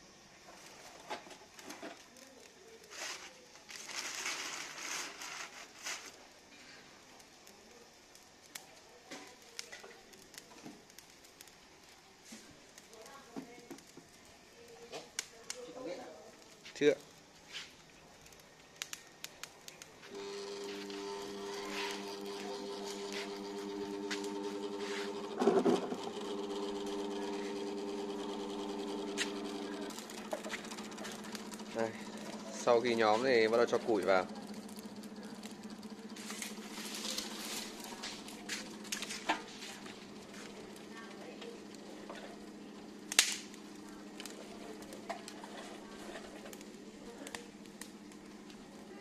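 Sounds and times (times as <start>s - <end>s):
twigs crackling in fire: 0.4s - 49.0s
fan motor humming: 19.8s - 49.0s
twig snapping: 43.1s - 43.5s.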